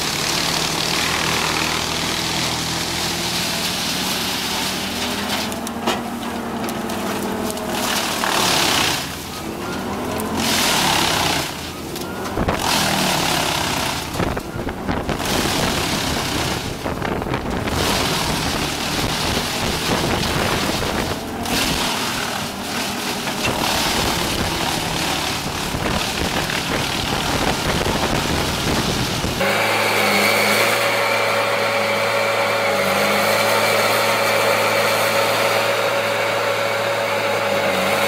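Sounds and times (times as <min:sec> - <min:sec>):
wood chipper chipping branches: 0:00.0 - 0:38.0.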